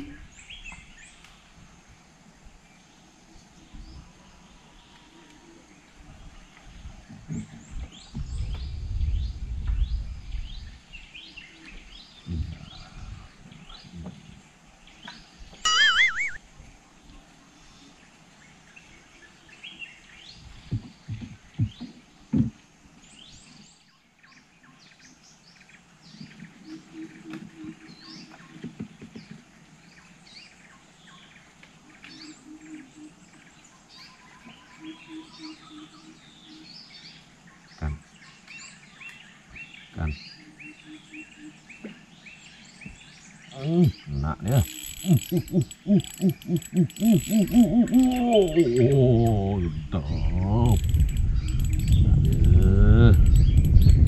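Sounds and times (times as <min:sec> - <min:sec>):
birds chirping: 0:00.0 - 0:54.0
loud wavering bird call: 0:15.6 - 0:16.4, 0:32.2 - 0:33.3, 0:34.1 - 0:36.8, 0:40.4 - 0:42.0, 0:43.5 - 0:51.8
knocks on wooden canoe: 0:20.7 - 0:22.6.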